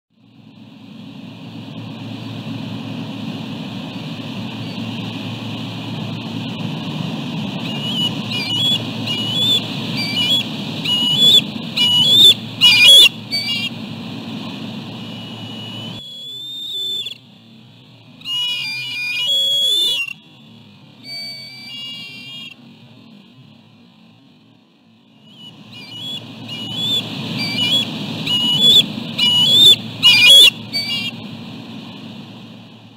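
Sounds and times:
low steady rush: 0:00.1 - 0:32.9
wind: 0:00.1 - 0:32.9
surf: 0:00.5 - 0:24.2, 0:25.3 - 0:32.9
eagles chittering: 0:07.4 - 0:17.2, 0:18.2 - 0:20.3, 0:21.0 - 0:22.6, 0:25.2 - 0:31.3.

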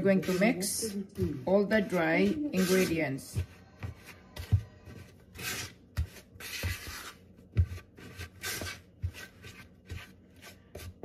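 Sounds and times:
spatula scraping plastic bowl: 0:00.0 - 0:11.0.

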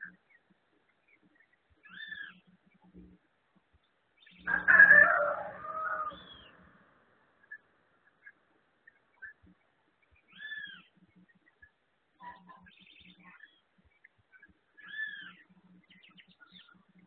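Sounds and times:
rooster crowing: 0:04.4 - 0:06.6.

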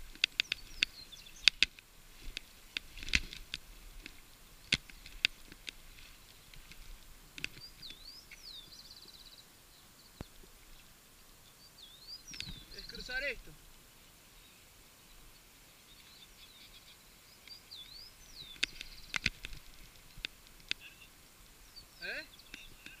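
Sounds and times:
birds whistling: 0:07.6 - 0:10.3, 0:11.5 - 0:13.4, 0:15.9 - 0:19.4, 0:20.8 - 0:23.0
bird trill: 0:11.4 - 0:13.3.

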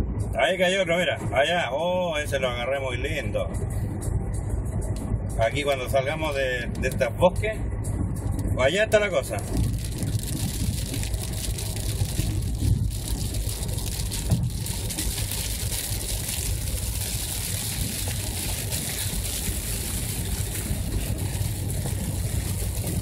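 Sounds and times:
engine and road rumble: 0:00.0 - 0:23.0
rain against windshield: 0:09.2 - 0:23.0
tyres hissing on wet pavement: 0:09.5 - 0:23.0.

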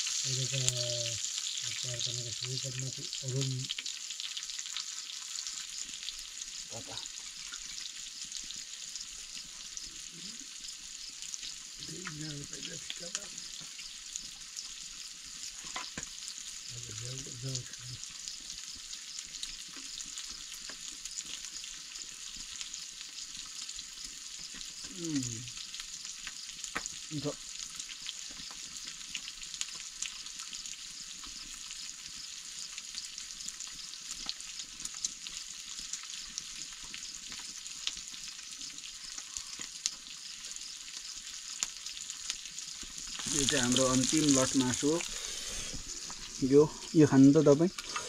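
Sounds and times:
fire popping and crackling: 0:00.0 - 0:48.0
meat sizzling in a pan: 0:00.0 - 0:48.0
low murmur of a voice: 0:24.9 - 0:25.5.

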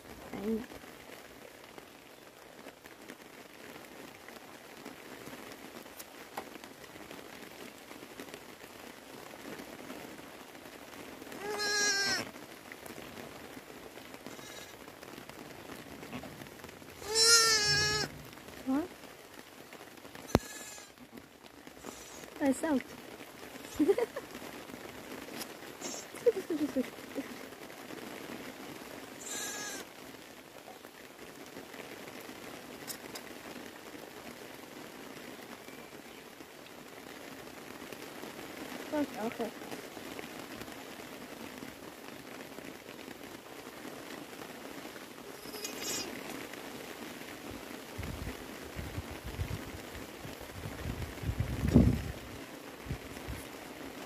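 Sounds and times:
light rain pattering: 0:00.0 - 0:54.0
lamb bleating: 0:11.4 - 0:12.3, 0:14.3 - 0:14.8, 0:17.0 - 0:18.1, 0:20.3 - 0:21.0, 0:21.8 - 0:22.3, 0:29.2 - 0:29.8, 0:45.3 - 0:46.1.

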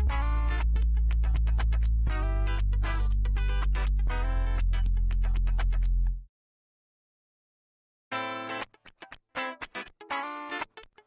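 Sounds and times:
guitar chords strumming: 0:00.0 - 0:06.2, 0:08.1 - 0:10.9
sustained low bass: 0:00.0 - 0:06.3.

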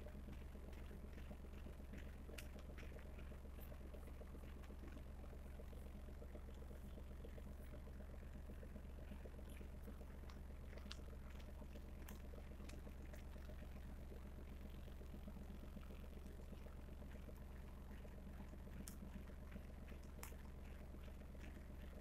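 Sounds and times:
faint clicks and crackles: 0:00.0 - 0:22.0
steady low hum: 0:00.0 - 0:22.0.

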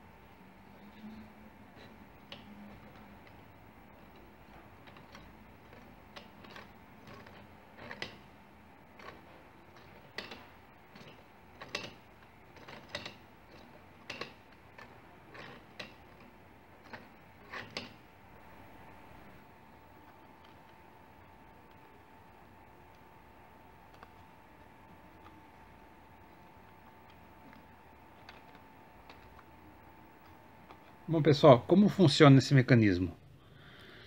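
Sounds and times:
plastic counter wheels clicking: 0:02.2 - 0:08.3, 0:08.9 - 0:18.0.

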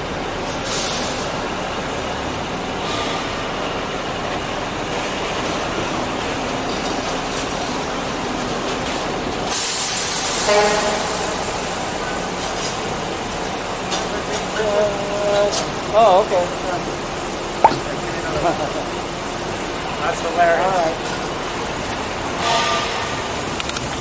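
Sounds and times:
city street traffic: 0:00.0 - 0:24.0
sudden loud hiss with whine: 0:09.5 - 0:22.4.

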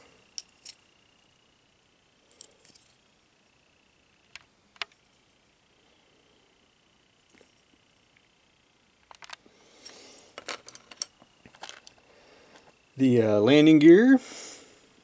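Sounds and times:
small plastic parts clicking: 0:09.0 - 0:09.4, 0:10.2 - 0:12.0.

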